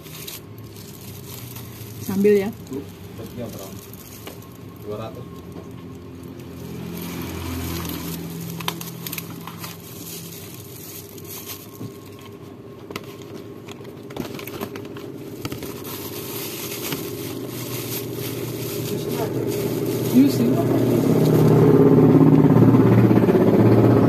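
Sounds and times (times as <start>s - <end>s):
plastic glove crinkling: 0.0s - 22.2s.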